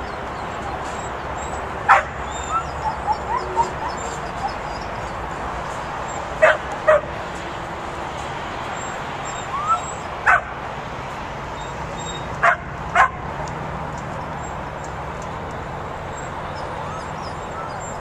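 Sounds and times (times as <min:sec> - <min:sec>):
steady background noise: 0:00.0 - 0:18.0
dog barking in sharp yaps: 0:09.7 - 0:10.5, 0:12.4 - 0:13.2.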